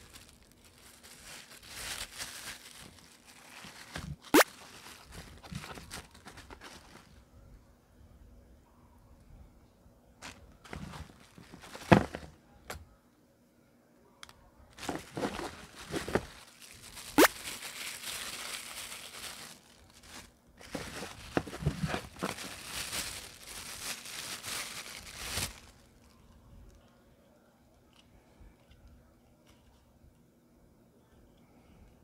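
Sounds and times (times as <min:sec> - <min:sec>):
plastic wrapping crinkling: 0:00.0 - 0:07.2, 0:10.2 - 0:12.3, 0:14.7 - 0:26.8.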